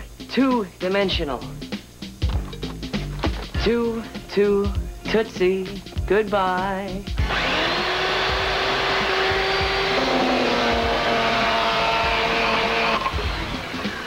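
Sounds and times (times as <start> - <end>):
electric chainsaw whining: 7.2 - 14.0.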